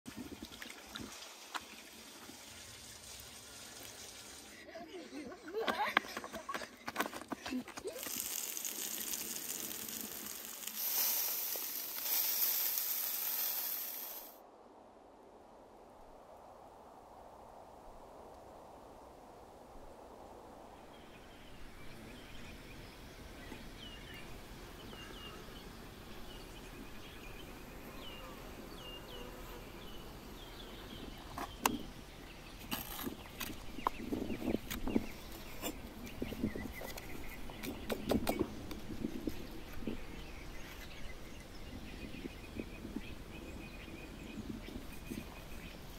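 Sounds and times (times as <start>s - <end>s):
chickens sizzling over charcoal: 1.2s - 4.5s, 7.9s - 14.4s.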